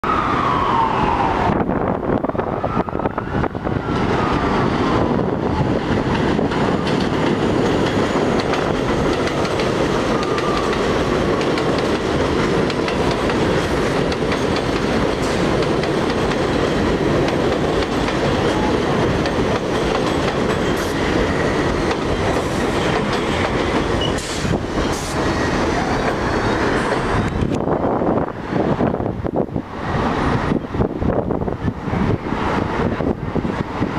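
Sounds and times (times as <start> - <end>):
subway train rumbling: 0.0 - 33.9
wheels clacking over rail joints: 5.6 - 27.6.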